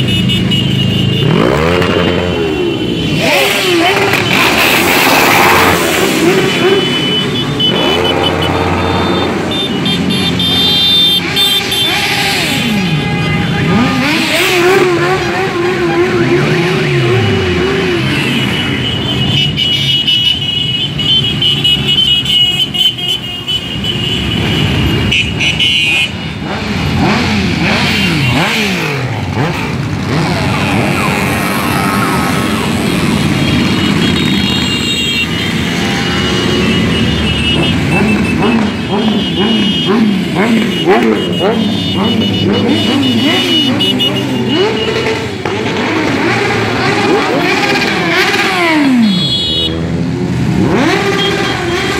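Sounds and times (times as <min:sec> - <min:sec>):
motorcycles riding past: 0:26.4 - 0:51.9.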